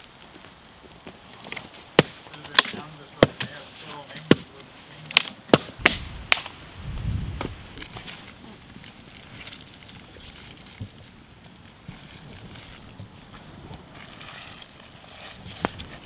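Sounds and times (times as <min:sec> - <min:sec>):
wood knocking and cracking: 0:00.4 - 0:06.5.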